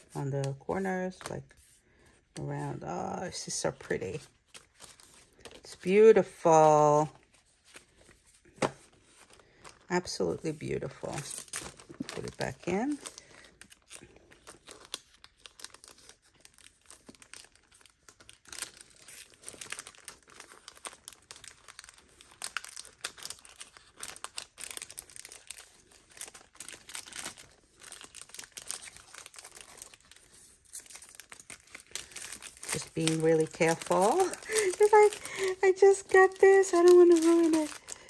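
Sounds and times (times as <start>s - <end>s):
paper packaging crinkling: 3.1s - 38.0s.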